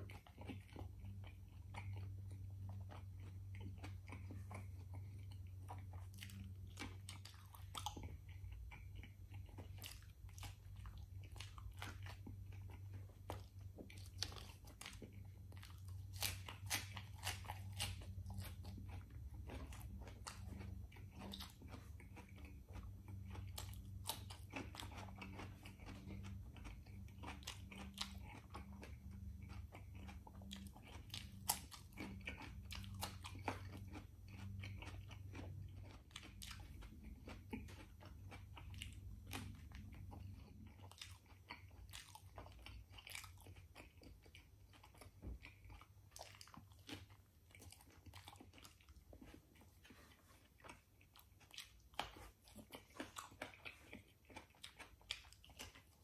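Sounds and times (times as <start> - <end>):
low steady hum: 0.0 - 56.0
wet chewing clicks and smacks: 0.0 - 56.0
crunchy cucumber bites: 13.9 - 44.2.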